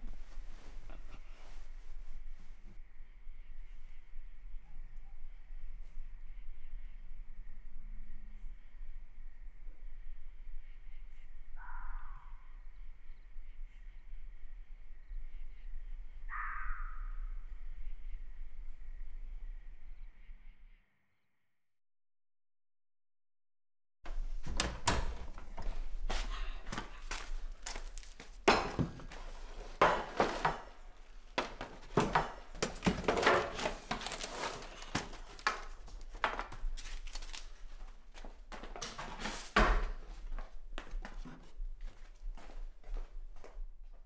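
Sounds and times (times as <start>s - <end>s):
knocks and clatters of kitchen items: 28.4s - 30.8s, 31.4s - 36.6s.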